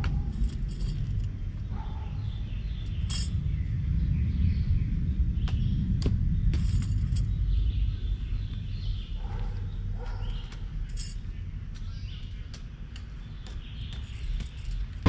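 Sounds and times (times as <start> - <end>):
birds chirping: 1.4 - 15.0
metallic clinks of hand tool: 3.1 - 3.4.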